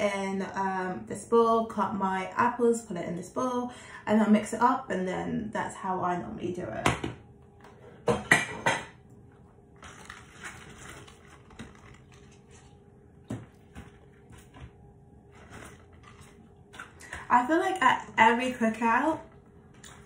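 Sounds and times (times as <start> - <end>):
kitchenware clattering: 8.0 - 9.0
cabbage leaves rustling: 9.8 - 12.7.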